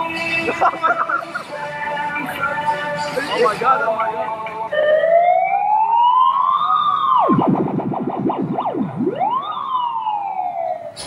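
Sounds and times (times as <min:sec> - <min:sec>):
electronic siren wailing and yelping: 0:04.8 - 0:11.0.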